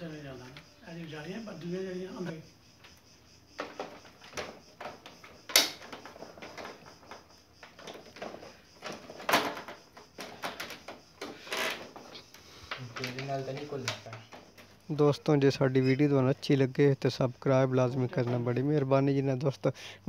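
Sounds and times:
plastic cover clicks and knocks: 3.6 - 11.0.

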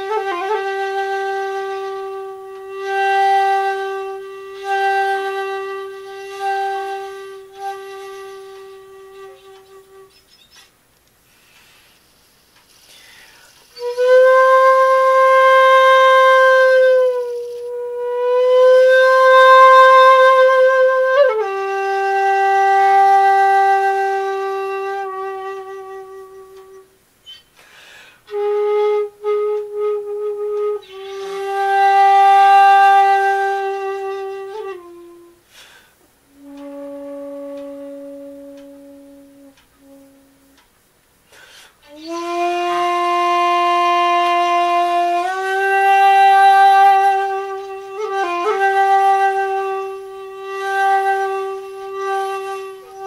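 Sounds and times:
solo flute playing: 0.0 - 10.7, 13.4 - 27.6, 28.2 - 40.7, 41.8 - 53.0
breaths: 11.2 - 13.7, 27.6 - 28.3, 35.5 - 36.1, 41.2 - 41.8.

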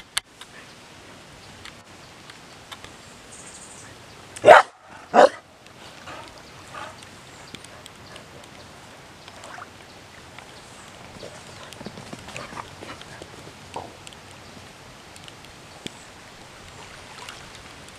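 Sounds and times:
rain pattering on water: 0.0 - 3.3, 3.9 - 17.9
dog barking: 4.4 - 5.4.

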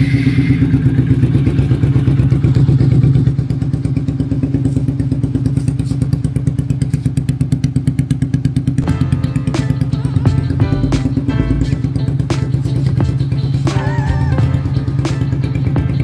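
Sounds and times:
motorcycle engine idling: 0.0 - 16.0
music: 8.8 - 16.0.

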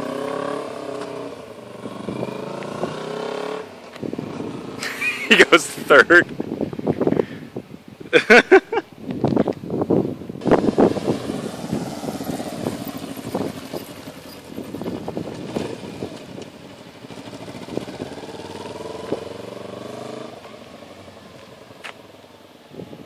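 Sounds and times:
motorcycle engine passing by: 0.0 - 5.8, 10.4 - 22.2.

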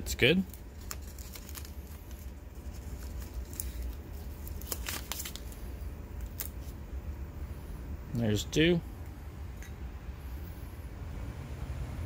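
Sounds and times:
low steady rumble: 0.0 - 12.0
tape crackling and ticking: 0.3 - 6.8.

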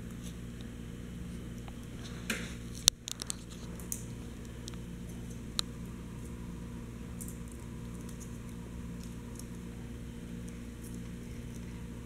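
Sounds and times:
steady low hum: 0.0 - 12.0
dog gnawing a chew bone: 7.1 - 12.0.

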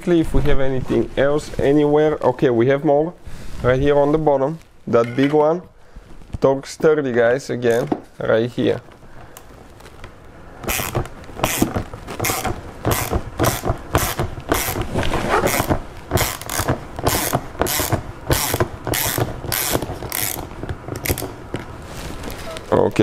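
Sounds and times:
hand ratchet clicking: 10.6 - 21.4.

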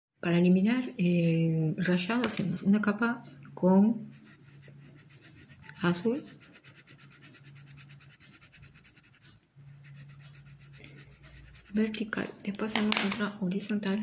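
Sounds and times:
coloured pencil scratching on paper: 4.0 - 12.5.

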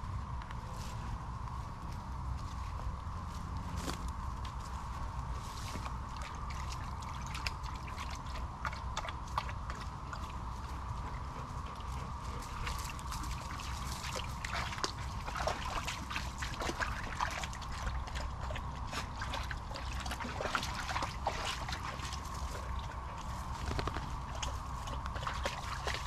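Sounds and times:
water sloshing and splashing: 5.6 - 26.0
stream trickling: 5.7 - 26.0.

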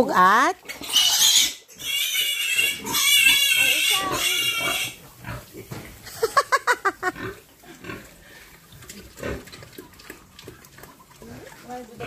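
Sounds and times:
pig squealing: 0.6 - 5.5
pig grunting: 2.2 - 5.7, 7.1 - 8.4, 9.0 - 10.6.

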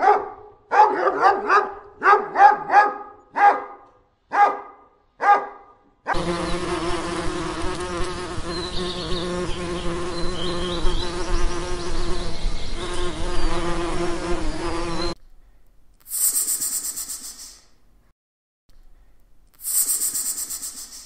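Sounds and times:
insect buzzing: 6.1 - 15.2, 16.0 - 17.6, 19.6 - 21.0
short hiss: 16.0 - 17.8, 19.6 - 21.0.

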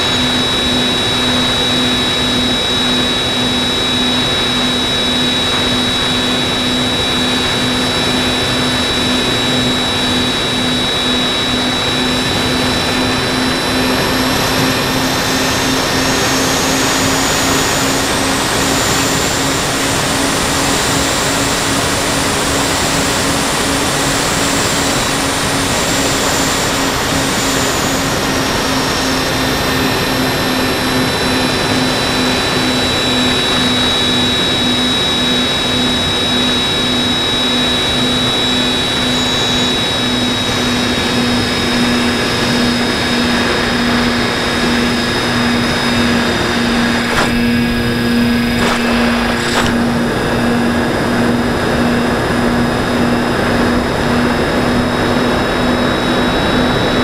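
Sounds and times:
electric motors humming: 0.0 - 57.0
high motor whine: 0.0 - 57.0
rushing wind noise: 35.6 - 57.0.

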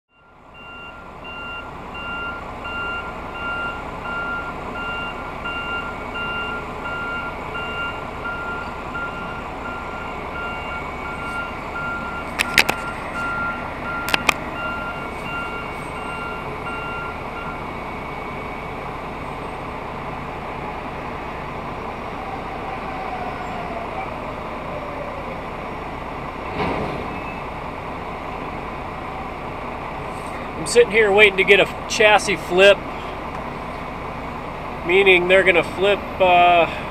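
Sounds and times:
crane warning alarm beeping: 0.1 - 20.2
truck engine idling: 0.1 - 36.9.

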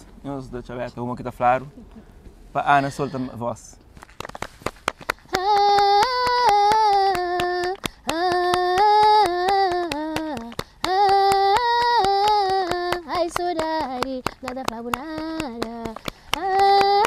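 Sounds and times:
rhythmic hand clapping: 4.0 - 17.0
woman singing long notes: 5.3 - 17.0.

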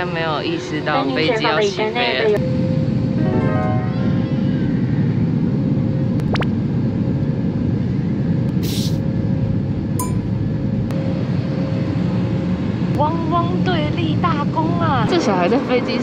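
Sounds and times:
airliner cabin rumble: 0.0 - 16.0
brief hiss: 8.6 - 9.0.

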